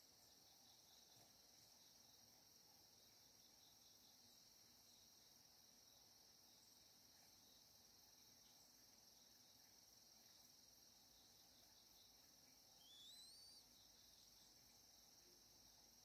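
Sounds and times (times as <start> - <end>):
insect chorus: 0.0 - 16.0
whistled bird call: 12.8 - 13.7.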